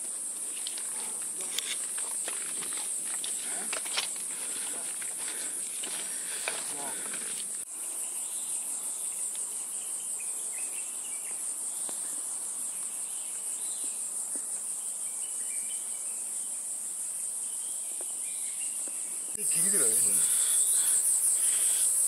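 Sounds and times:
high-pitched insect chorus: 0.0s - 22.0s.

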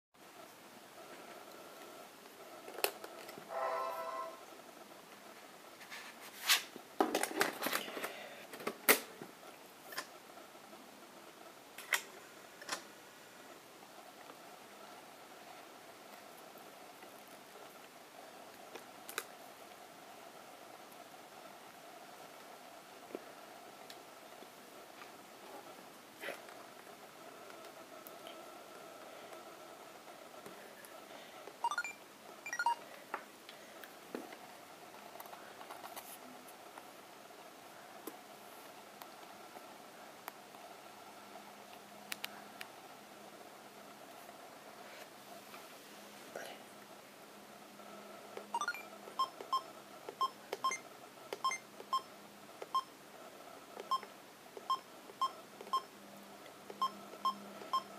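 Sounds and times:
camera electronic beeps: 31.6s - 32.8s, 48.6s - 50.8s.

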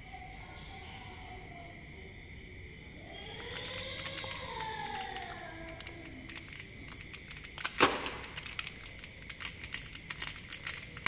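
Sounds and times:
plastic wrapper crinkling: 3.4s - 11.0s.

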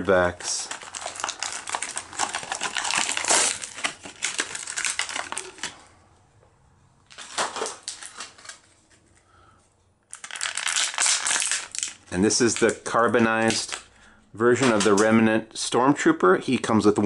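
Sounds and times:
plastic and cardboard tearing: 0.6s - 5.8s, 7.1s - 8.6s, 10.2s - 12.7s.

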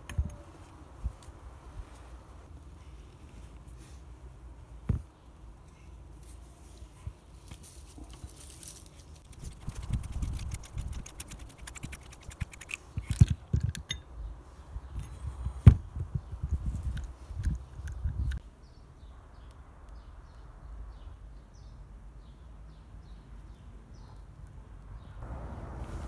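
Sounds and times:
gritty clicks and scrapes of metal: 7.5s - 14.0s.

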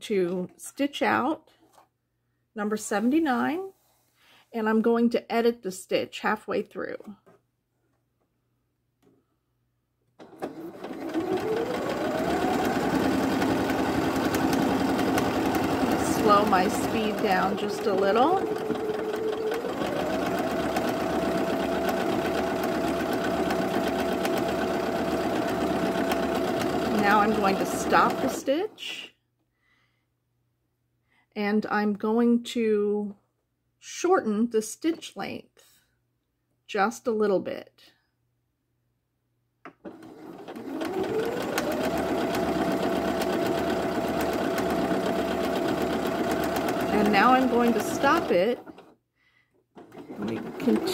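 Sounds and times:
sewing machine motor hum: 10.2s - 28.9s, 39.8s - 49.0s, 49.8s - 50.9s.

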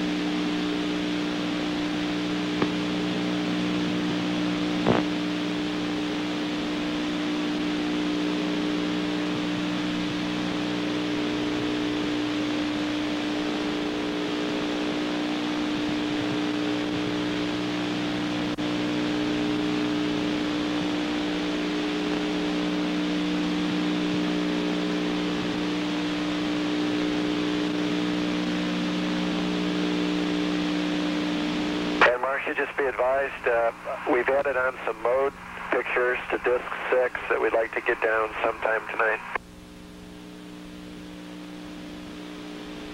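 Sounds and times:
low hum of held tones: 0.0s - 42.9s
radio hiss: 4.8s - 5.2s, 32.0s - 39.4s.

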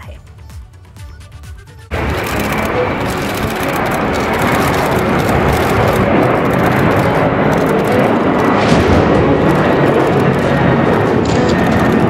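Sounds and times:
jet engines at takeoff power: 1.9s - 12.0s.

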